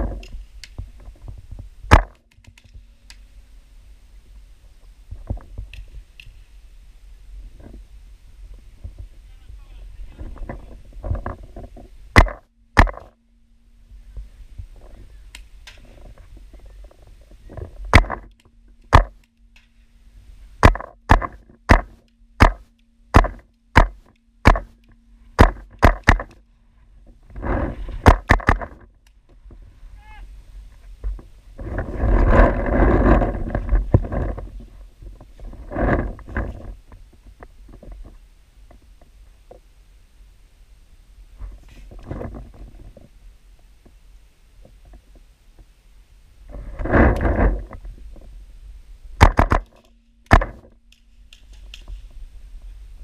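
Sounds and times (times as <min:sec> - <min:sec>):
rustling noise: 0:00.0 - 0:13.2, 0:14.0 - 0:39.7, 0:41.2 - 0:45.8, 0:46.4 - 0:53.0
paintball gun cracks: 0:49.2 - 0:51.9.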